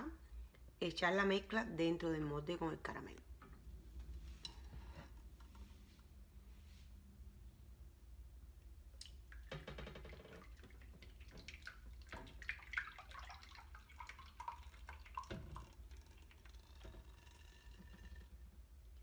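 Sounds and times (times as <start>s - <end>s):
thick batter pouring: 9.0s - 19.0s.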